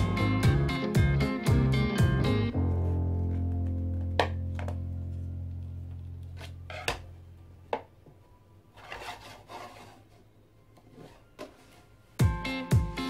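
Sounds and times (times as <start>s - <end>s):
soft rubbing: 8.8s - 10.3s.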